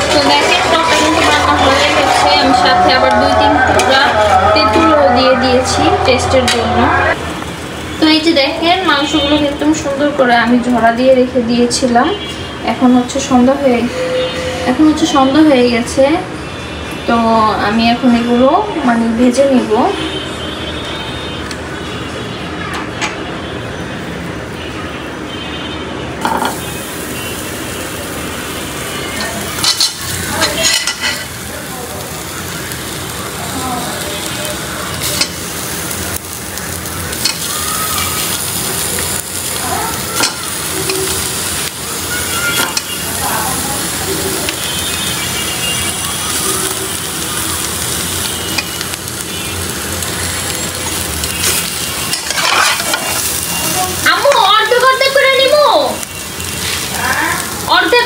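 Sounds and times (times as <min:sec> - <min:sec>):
meat sizzling in a wok: 0:00.0 - 0:13.8, 0:26.2 - 0:58.0
metal spatula clattering in wok: 0:52.1 - 0:53.2.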